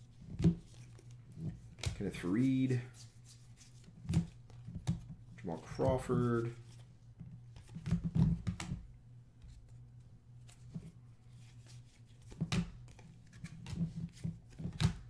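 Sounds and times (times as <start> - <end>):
cards sliding with papery swish: 0.6 - 3.9, 10.4 - 14.6.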